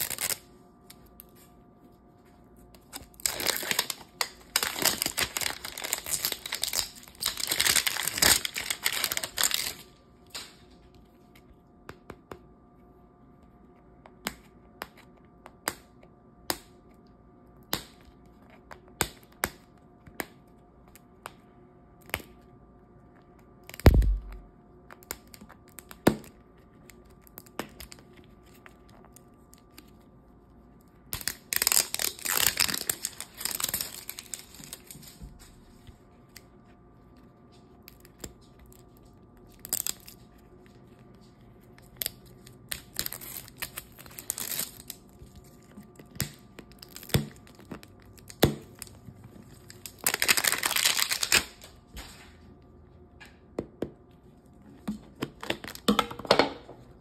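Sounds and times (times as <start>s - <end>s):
plastic wrap tearing: 0.0s - 0.5s, 2.9s - 10.6s, 31.1s - 35.2s, 39.6s - 40.2s, 41.8s - 52.2s, 55.4s - 56.0s.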